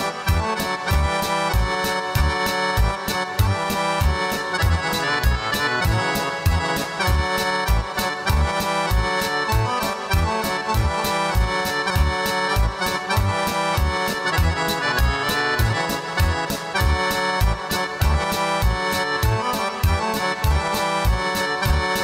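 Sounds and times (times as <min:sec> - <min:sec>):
accordion folk dance music: 0:00.0 - 0:22.0
steady bass beat: 0:00.0 - 0:22.0.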